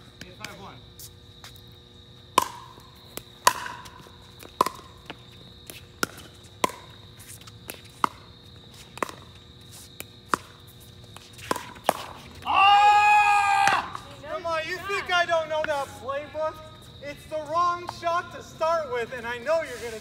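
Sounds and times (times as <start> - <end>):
player shouting: 12.4 - 16.5.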